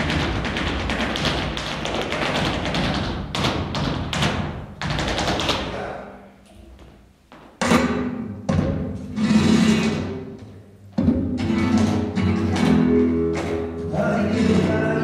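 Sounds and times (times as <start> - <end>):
dancer's shoes stamping on stage: 0.0 - 5.8, 9.9 - 13.9.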